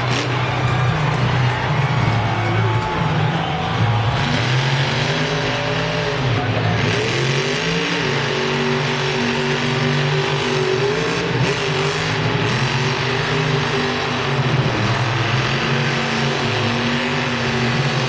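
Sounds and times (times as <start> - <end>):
monster truck engine revving: 0.0 - 18.0.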